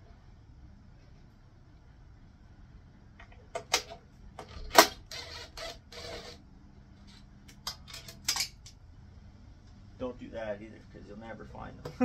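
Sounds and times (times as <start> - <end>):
metal on metal clicks: 7.5 - 8.8.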